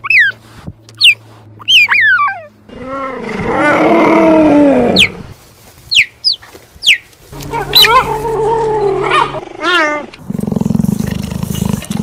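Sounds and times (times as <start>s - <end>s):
cheetah chirping: 1.0s - 2.5s.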